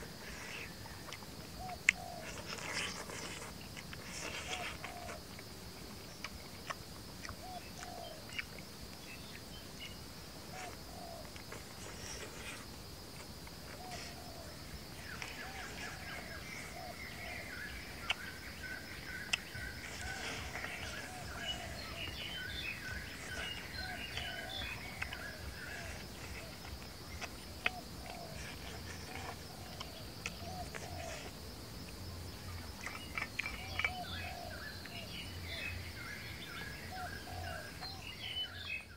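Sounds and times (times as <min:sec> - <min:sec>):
high insect drone: 0:00.0 - 0:38.9.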